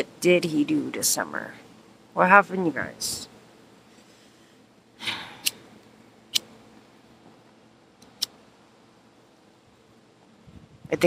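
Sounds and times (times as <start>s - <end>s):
lighter hiss: 5.4s - 5.6s, 8.0s - 8.3s.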